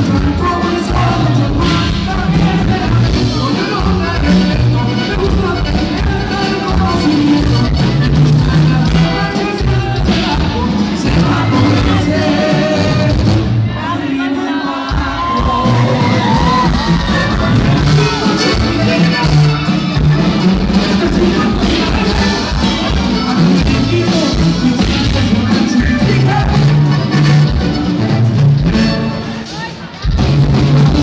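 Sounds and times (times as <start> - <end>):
live band with singers: 0.0 - 31.0
crowd shouting: 8.0 - 27.0.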